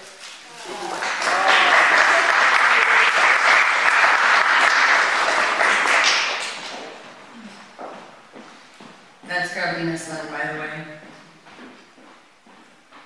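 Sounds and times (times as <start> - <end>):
audience applauding: 0.5 - 7.2.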